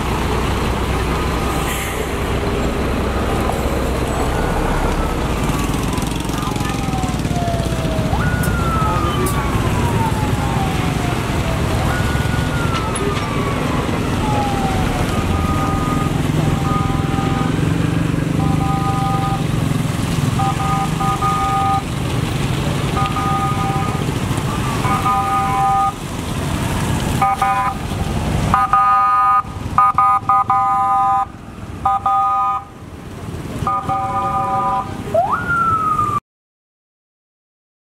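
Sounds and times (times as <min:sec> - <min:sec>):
low engine rumble: 0:00.0 - 0:28.8
rising and falling wail: 0:03.1 - 0:19.4, 0:34.7 - 0:36.2
two-tone vehicle horn blasts: 0:20.4 - 0:21.8, 0:27.2 - 0:27.8, 0:28.6 - 0:31.2, 0:31.9 - 0:32.6, 0:33.7 - 0:34.9.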